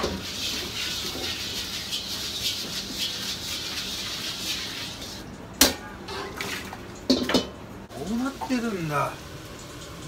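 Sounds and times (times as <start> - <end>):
food sizzling in a pan: 0.0 - 5.4, 7.9 - 10.0.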